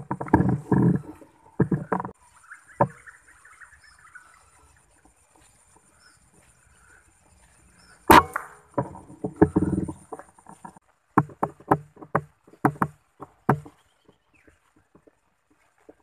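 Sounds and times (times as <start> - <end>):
rustling and clattering: 0.0 - 2.2, 8.1 - 16.0
sharp knocks: 8.1 - 10.2, 11.2 - 13.8.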